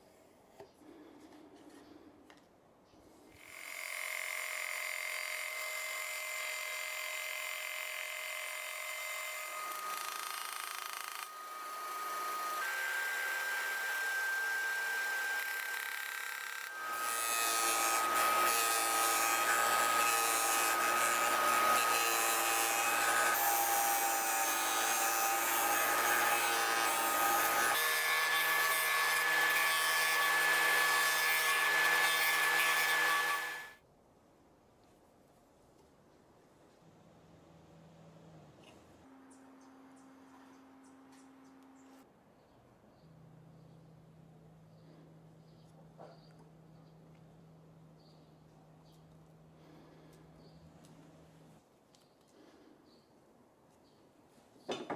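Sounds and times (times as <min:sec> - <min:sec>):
disc sander grinding wood: 0:03.8 - 0:33.7.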